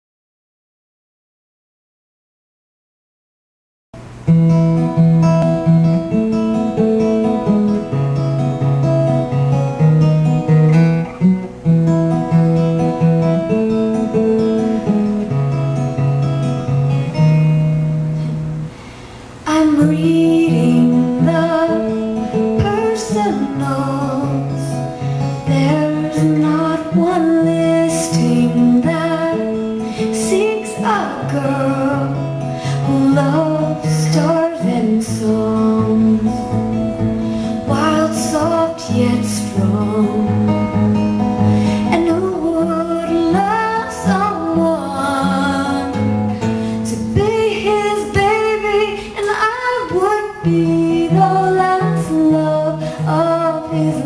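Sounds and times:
acoustic guitar strumming: 4.0s - 54.0s
woman singing: 19.4s - 54.0s.

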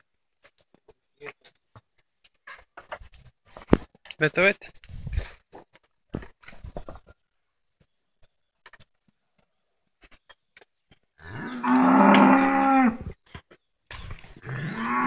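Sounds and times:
cow mooing: 11.2s - 13.1s, 14.4s - 15.0s.

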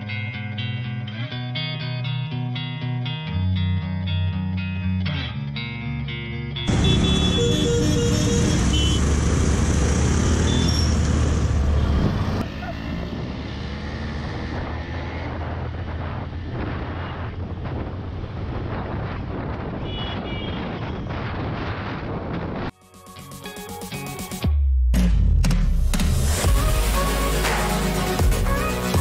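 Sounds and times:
motorcycle engine: 6.7s - 18.3s
wind on microphone: 14.2s - 22.7s.

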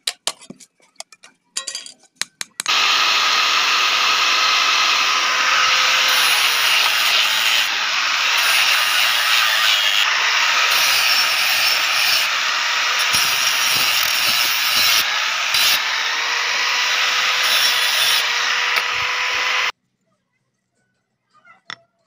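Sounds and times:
angle grinder grinding steel: 2.7s - 19.7s.

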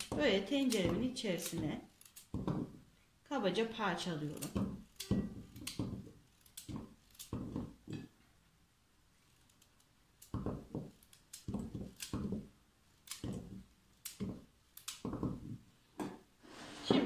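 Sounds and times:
knife cutting carrot: 10.2s - 15.6s.

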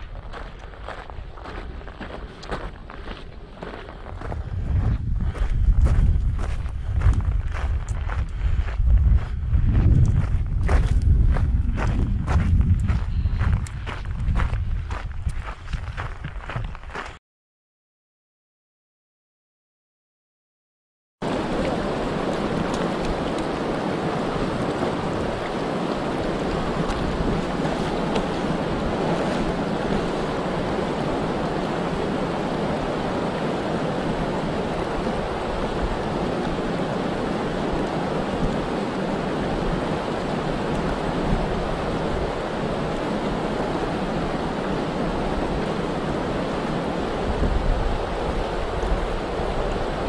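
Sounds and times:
creek rushing over rocks: 21.2s - 50.0s.

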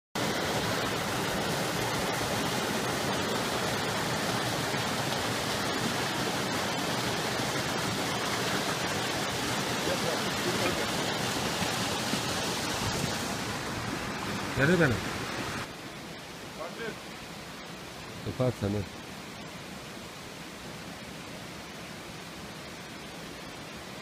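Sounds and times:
stream rushing over rocks: 0.2s - 24.0s.

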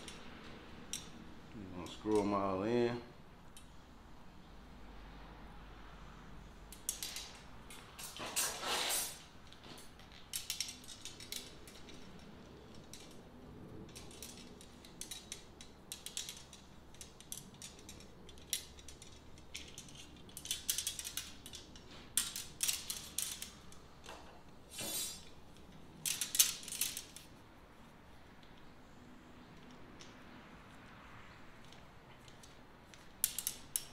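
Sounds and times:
metal rods clicking and scraping: 0.0s - 2.6s, 6.7s - 27.4s, 31.4s - 33.9s.

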